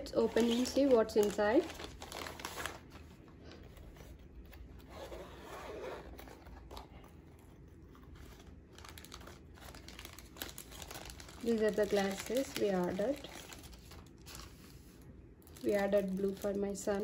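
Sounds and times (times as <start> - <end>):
plastic packaging rustling: 0.0 - 5.2, 5.8 - 17.0
zipper opening: 4.8 - 6.8.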